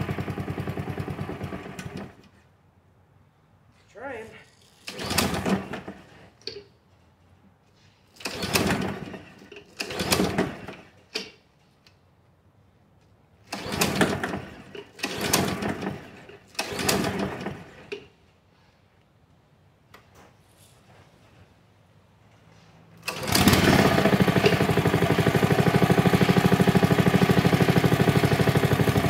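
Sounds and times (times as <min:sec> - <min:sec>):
mower engine turning over: 0:00.0 - 0:02.3, 0:04.8 - 0:06.6, 0:08.2 - 0:11.1, 0:13.5 - 0:18.0, 0:23.0 - 0:29.0
recoil starter pulls: 0:00.0 - 0:02.4, 0:04.6 - 0:06.7, 0:08.1 - 0:11.4, 0:13.4 - 0:18.1, 0:23.0 - 0:29.0.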